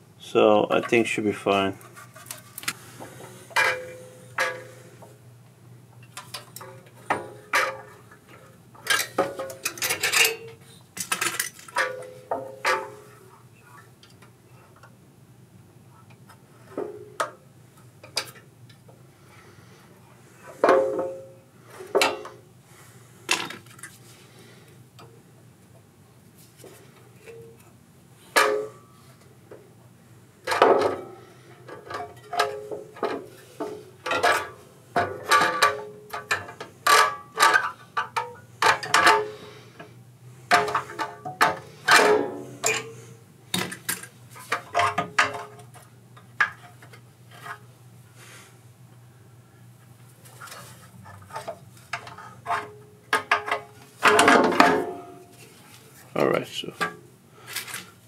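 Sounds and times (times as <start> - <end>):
low steady hum: 0.0 - 58.0
metal tools clanking: 8.8 - 13.0, 40.5 - 43.0.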